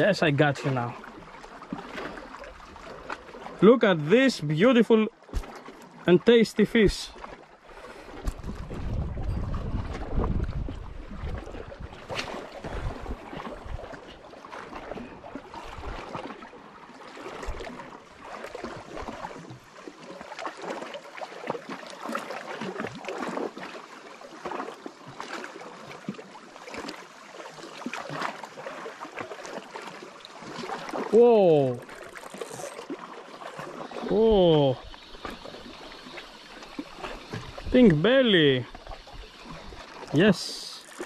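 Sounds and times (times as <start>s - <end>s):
small waves lapping against rocks: 0.0s - 41.0s
wind rumbling on microphone: 8.0s - 14.2s, 34.3s - 40.2s.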